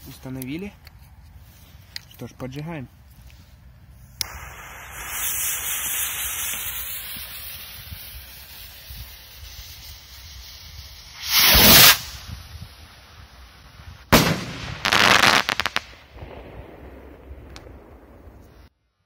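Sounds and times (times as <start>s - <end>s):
rocket motor hissing: 4.2s - 13.2s
fuse sparking: 4.2s - 16.0s.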